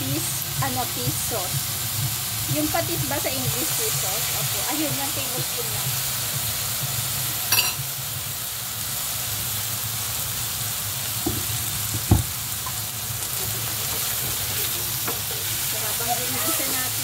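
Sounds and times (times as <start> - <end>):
food sizzling in a frying pan: 0.0 - 17.0
dull knock: 11.2 - 12.4.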